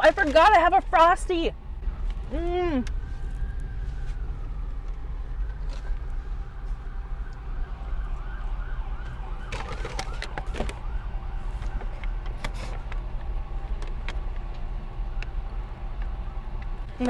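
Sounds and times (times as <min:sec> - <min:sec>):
paper and plastic cup crinkling: 0:00.0 - 0:01.0, 0:09.4 - 0:13.0
low hum inside car: 0:00.0 - 0:17.0
distant siren yelping: 0:01.8 - 0:12.4.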